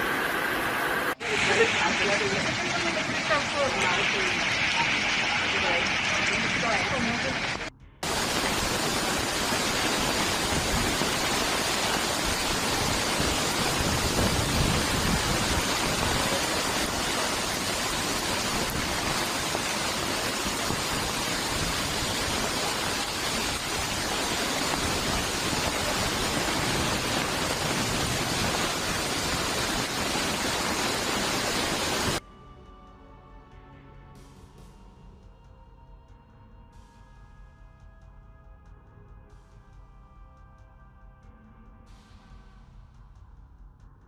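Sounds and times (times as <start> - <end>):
heavy rain pouring: 0.0 - 32.2.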